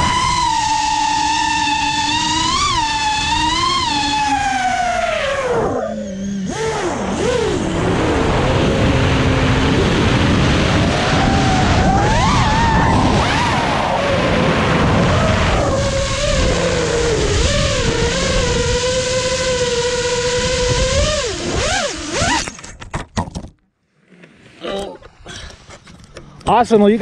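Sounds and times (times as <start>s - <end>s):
drone propellers whining: 0.0s - 22.7s
rush of wind: 6.7s - 22.4s.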